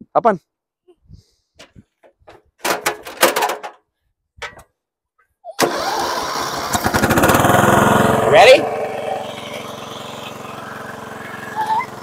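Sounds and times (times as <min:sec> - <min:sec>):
knocks and rattles: 0:01.6 - 0:04.7
lawn tractor engine running: 0:05.6 - 0:12.0.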